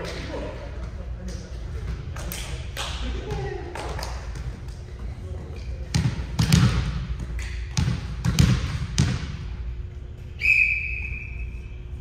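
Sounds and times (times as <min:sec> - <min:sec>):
volleyball thudding on gym floor: 0:05.9 - 0:09.4
high whistle blast: 0:10.4 - 0:11.9.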